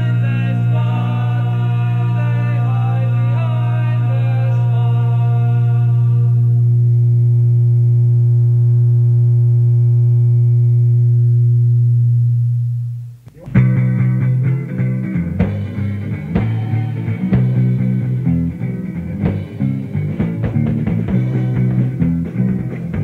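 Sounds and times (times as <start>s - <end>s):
punk band playing: 13.3s - 23.0s.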